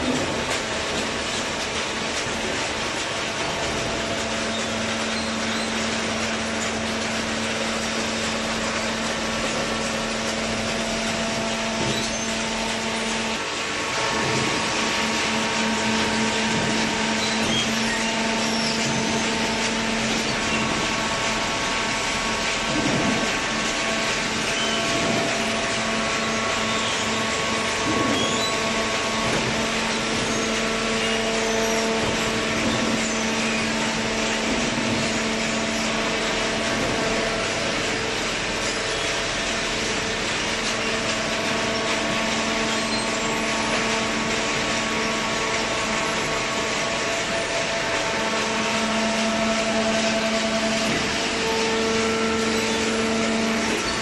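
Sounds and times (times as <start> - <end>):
machine humming: 0.0 - 54.0.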